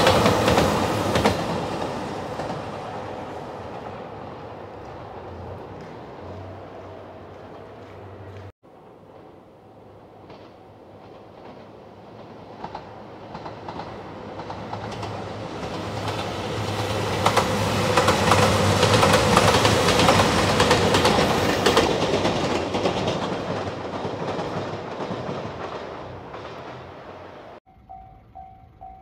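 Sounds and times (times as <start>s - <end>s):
diesel train engine hum: 0.0s - 29.0s
wheels clicking over rail joints: 10.1s - 27.6s.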